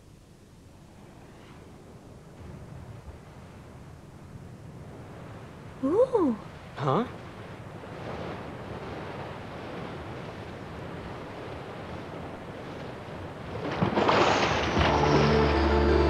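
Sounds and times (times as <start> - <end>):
sea surf rushing: 2.4 - 16.0
soft sustained music chords: 14.8 - 16.0.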